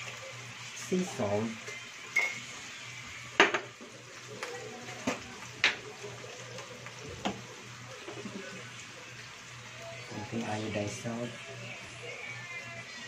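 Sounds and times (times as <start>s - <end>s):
chicken sizzling in frying pan: 0.0s - 13.0s
spoon clinking against dishes: 2.2s - 2.5s.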